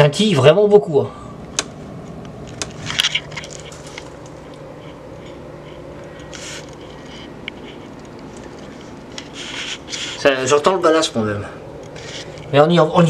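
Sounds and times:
fluorescent light ballast hum: 0:00.0 - 0:13.0
camera handling rustles: 0:02.1 - 0:10.1, 0:11.8 - 0:12.5.

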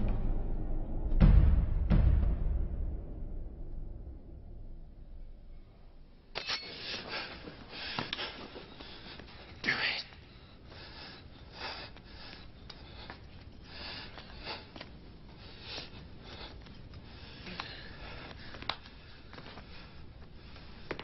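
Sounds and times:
man breathing heavily: 0:06.8 - 0:21.0.

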